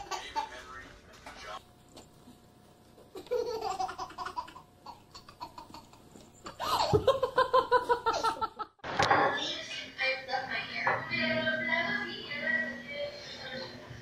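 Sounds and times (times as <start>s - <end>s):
baby laughing and squealing: 3.2s - 7.0s.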